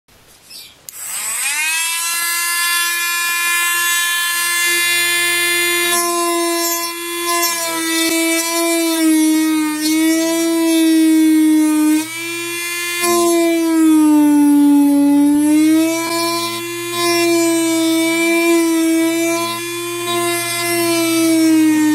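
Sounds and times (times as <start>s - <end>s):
rotary tool grinding: 0.9s - 21.9s.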